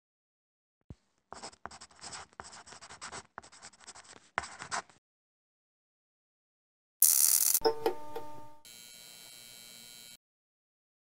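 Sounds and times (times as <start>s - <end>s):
pen scratching on paper: 1.3s - 5.0s.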